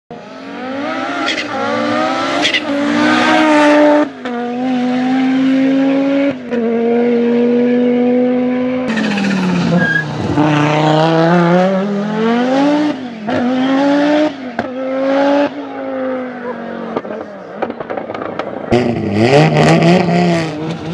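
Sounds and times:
car engine accelerating hard: 0:00.1 - 0:20.9
exhaust bangs and pops: 0:16.9 - 0:19.1.

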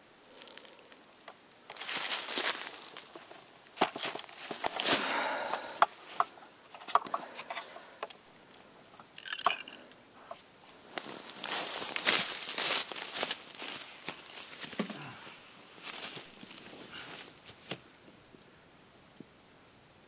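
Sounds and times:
footsteps crunching on frozen snow: 0:00.3 - 0:06.3, 0:10.6 - 0:17.8.

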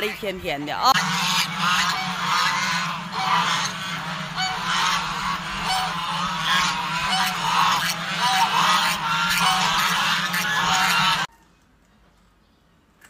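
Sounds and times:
geese honking: 0:00.0 - 0:11.3
steady low hum: 0:00.9 - 0:11.3.

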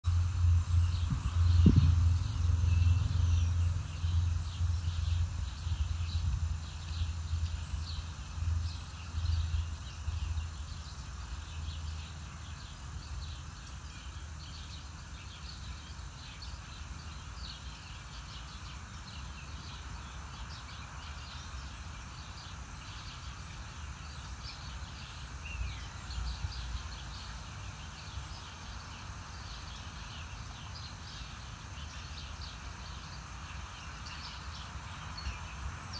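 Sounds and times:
wind rumbling on microphone: 0:00.0 - 0:11.9
small birds chirping: 0:00.0 - 0:35.9
steady hiss: 0:00.0 - 0:35.9.

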